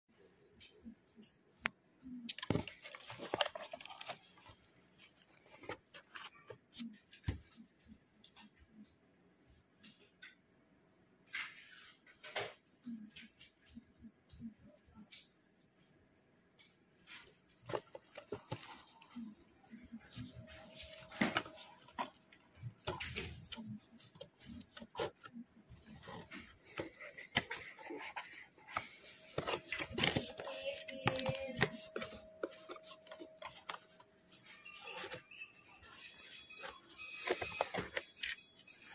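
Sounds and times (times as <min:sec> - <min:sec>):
packaging rustling: 0:02.3 - 0:06.8, 0:17.1 - 0:38.9
cardboard box handling noise: 0:02.3 - 0:07.5, 0:17.6 - 0:19.3, 0:20.0 - 0:34.0, 0:36.5 - 0:38.4.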